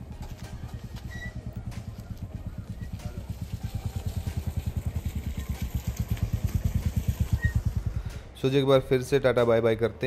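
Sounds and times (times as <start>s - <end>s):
car engine running: 0.1s - 8.4s.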